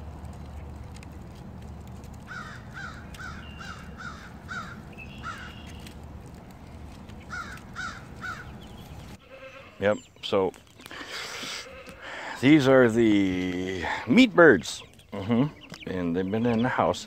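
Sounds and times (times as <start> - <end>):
crows cawing: 2.2 - 6.0, 7.2 - 9.8, 10.9 - 12.4.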